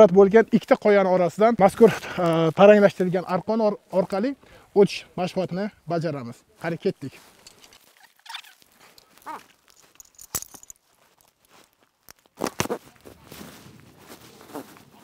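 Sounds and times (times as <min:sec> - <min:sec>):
climbing hardware clicking: 0:07.3 - 0:10.8
people calling: 0:07.6 - 0:09.5.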